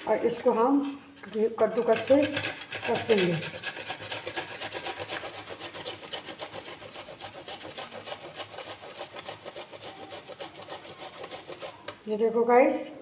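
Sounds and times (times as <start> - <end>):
grater rasping scrape: 1.7 - 12.0.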